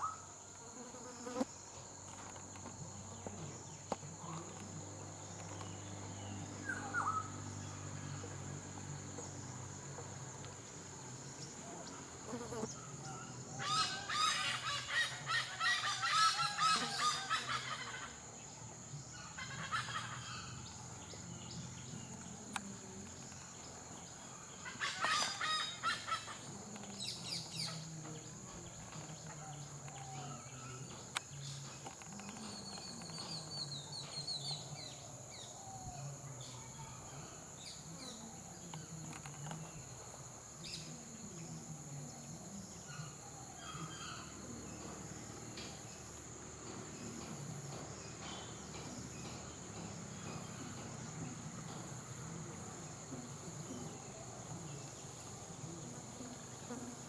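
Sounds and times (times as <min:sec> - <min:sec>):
high insect drone: 0:00.0 - 0:57.0
hornbills calling: 0:13.5 - 0:18.2, 0:24.4 - 0:28.0.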